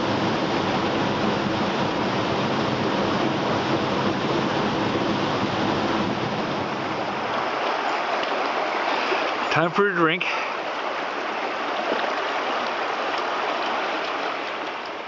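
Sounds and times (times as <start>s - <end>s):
deep rumble: 0.0s - 7.6s
stream water rushing: 0.0s - 15.0s.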